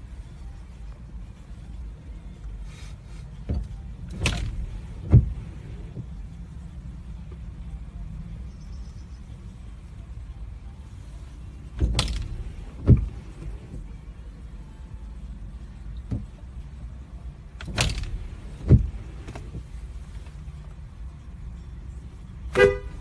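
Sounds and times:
car interior hum: 0.0 - 23.0
windscreen wipers swishing: 0.0 - 23.0
wiper thump: 3.5 - 5.4, 16.0 - 16.4.

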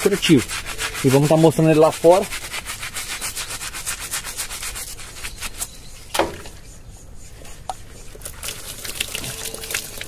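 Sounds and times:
gloved hands scrubbing wet hoof: 0.0 - 10.0
sharp knock: 6.1 - 6.5
liquid spattering onto hoof: 8.2 - 10.0.

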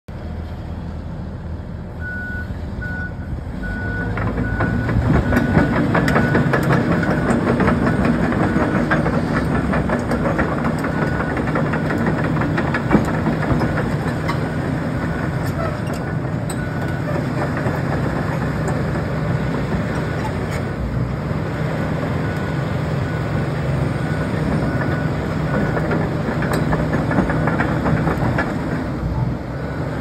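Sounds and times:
excavator diesel engine running: 0.1 - 30.0
steel tracks clanking: 4.0 - 20.7, 24.4 - 29.4.

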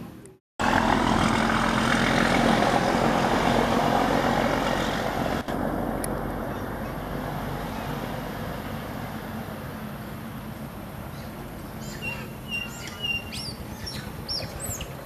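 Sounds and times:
small birds chirping: 11.1 - 15.0.

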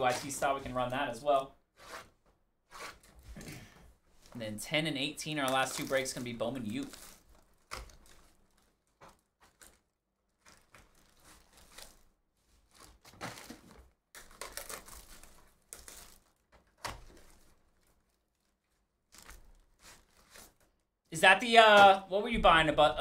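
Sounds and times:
cardboard tearing and scraping: 1.8 - 3.2, 10.4 - 18.5, 19.1 - 20.7
plastic wrap crinkling: 2.9 - 21.0.

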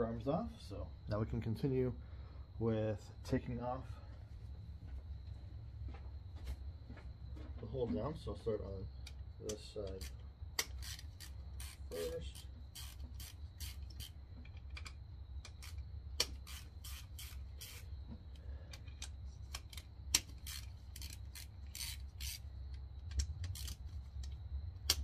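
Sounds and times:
steady low hum: 0.0 - 25.0
hand ratchet clicking: 9.5 - 17.9, 18.7 - 25.0.

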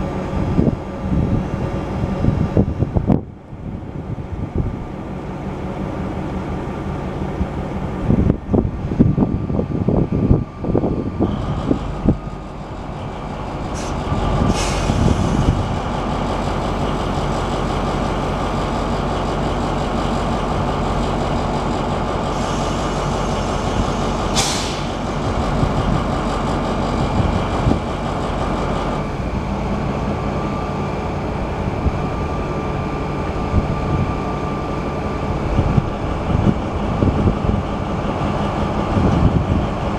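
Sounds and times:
locomotive diesel engine rumbling: 0.0 - 39.9
compressed air hisses: 13.8 - 15.5, 24.3 - 25.1.

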